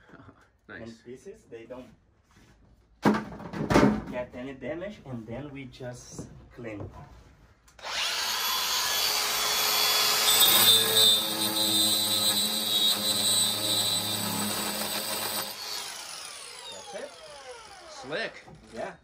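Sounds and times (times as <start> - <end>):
drill grinding stone edge: 7.8 - 18.9.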